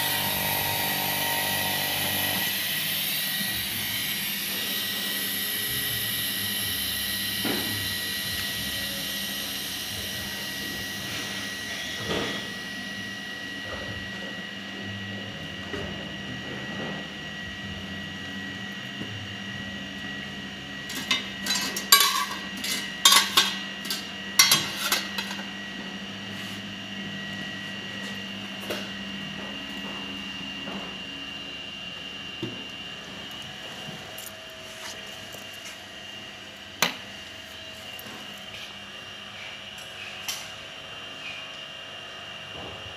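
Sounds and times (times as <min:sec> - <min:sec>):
freeze dryer humming with whine: 0:00.0 - 0:42.9
metal shelves clinking: 0:20.9 - 0:25.4.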